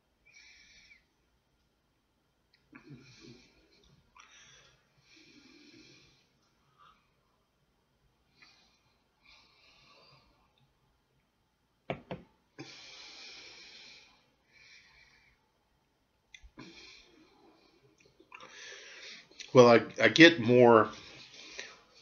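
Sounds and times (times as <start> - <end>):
soft hissing breaths: 0.0 - 1.8, 2.5 - 11.3, 12.4 - 22.0
glass knocking on table: 11.9 - 12.2.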